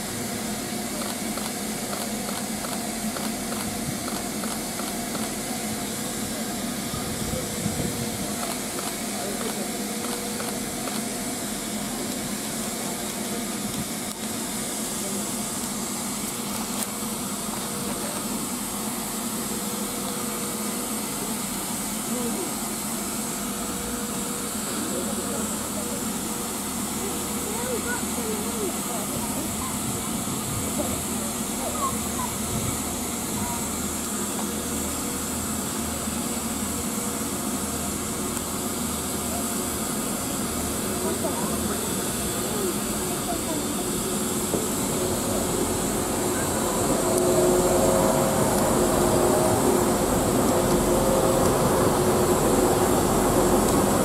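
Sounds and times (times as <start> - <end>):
steam locomotive blowing off steam: 0.0 - 54.0
low hum: 38.0 - 54.0.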